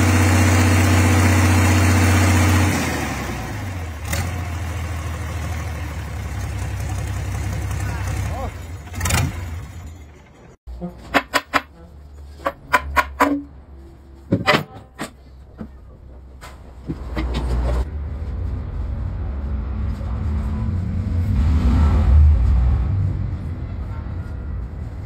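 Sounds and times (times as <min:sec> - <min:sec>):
metal parts clanking: 0:08.7 - 0:13.5.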